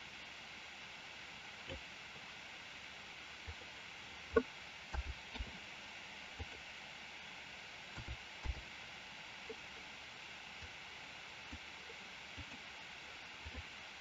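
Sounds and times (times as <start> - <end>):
microphone hiss: 0.0 - 14.0
computer mouse clicks: 8.0 - 8.6.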